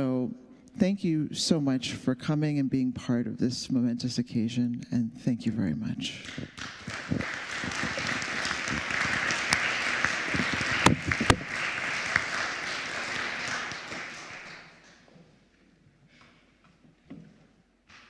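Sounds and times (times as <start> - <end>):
audience applauding: 6.2 - 15.0.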